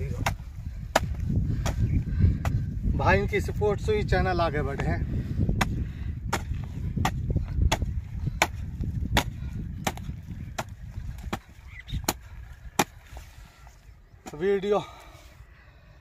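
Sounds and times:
hoe chopping hard soil: 0.0 - 2.6, 5.6 - 13.0.

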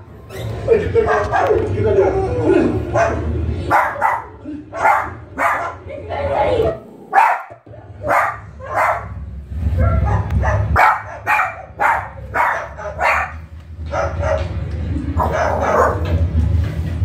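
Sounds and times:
steady low hum: 0.0 - 17.0
short dog-like barks: 7.2 - 9.1.

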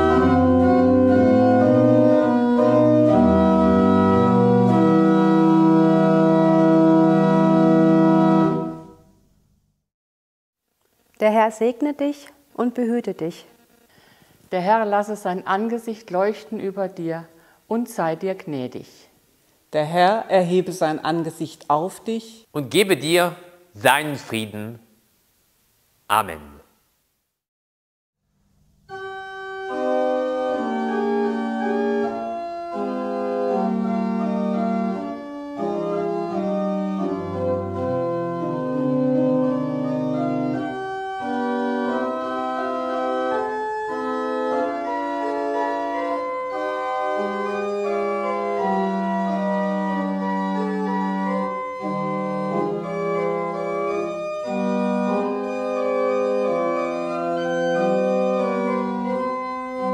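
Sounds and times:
deep organ pedal note: 0.0 - 8.9, 28.9 - 59.9
pipe organ playing chords: 0.0 - 9.0, 28.9 - 59.9.

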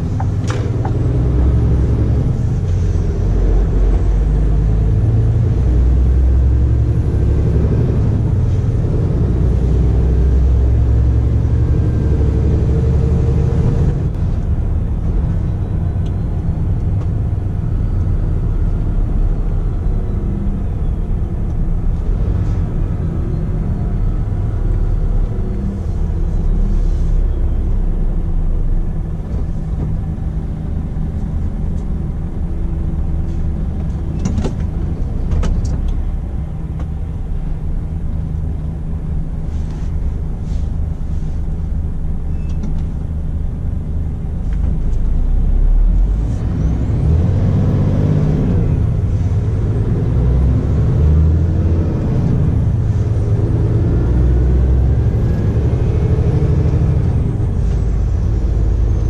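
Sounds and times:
road noise: 0.0 - 59.0
truck diesel engine running: 0.0 - 59.0.

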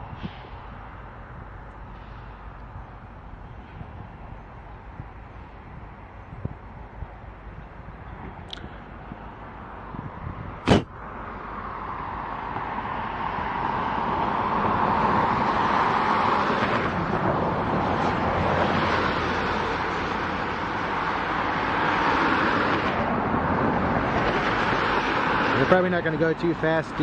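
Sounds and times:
diesel locomotive engine: 0.0 - 27.0
sharp knock: 10.7 - 10.9.

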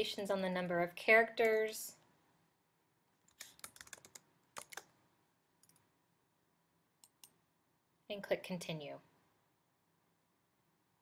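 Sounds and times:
keyboard typing: 3.3 - 4.9.

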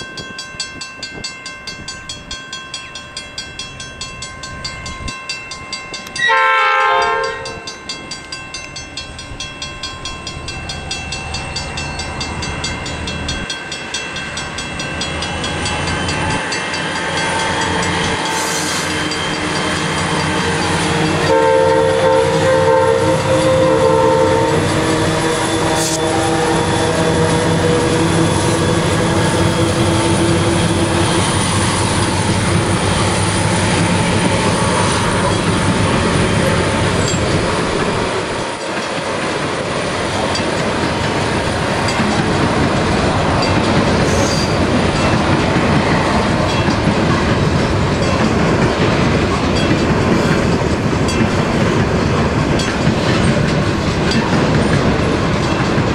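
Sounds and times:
train horn: 6.2 - 7.8, 17.5 - 32.3
freight wagons rumbling and clattering: 29.5 - 55.9.

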